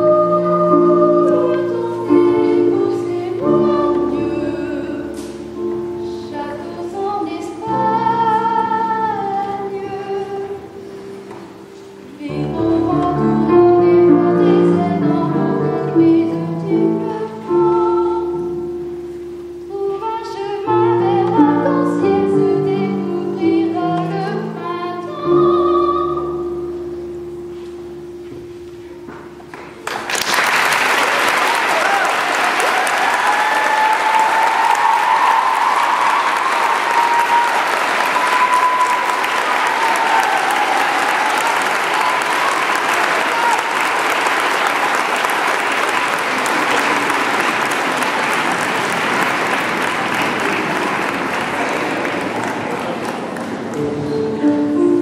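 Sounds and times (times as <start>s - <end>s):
boy singing slow melody: 0.0s - 29.5s
digital piano chords: 0.0s - 30.8s, 45.6s - 55.0s
audience applause: 29.5s - 54.1s.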